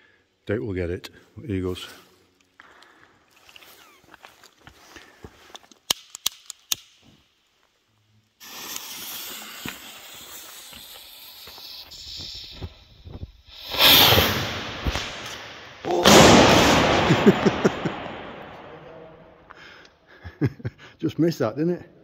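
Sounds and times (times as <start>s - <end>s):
firework fuse hissing and crackling: 8.3s - 18.7s
rocket rushing burst: 8.4s - 12.8s, 13.5s - 19.2s.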